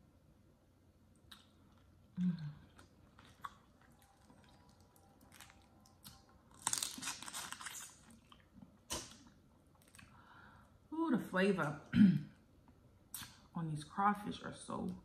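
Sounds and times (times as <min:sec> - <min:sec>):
crackling chewing: 0:02.7 - 0:10.1.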